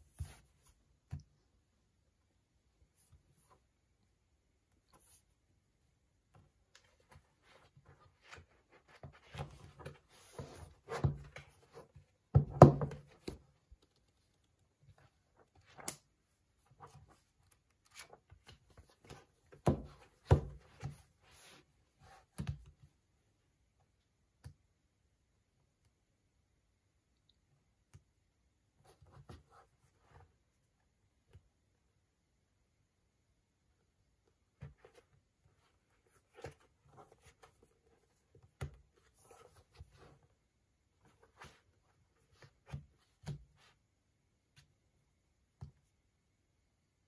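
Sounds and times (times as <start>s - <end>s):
book knocking on desk: 12.3s - 13.4s
book pages flipping: 16.7s - 22.5s.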